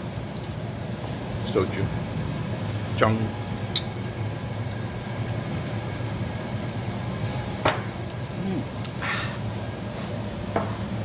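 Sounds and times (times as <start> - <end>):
man gasping: 9.0 - 9.4.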